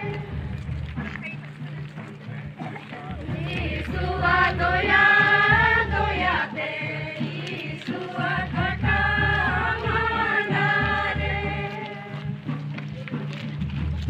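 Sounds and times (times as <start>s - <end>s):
group singing slow song: 3.2s - 12.4s.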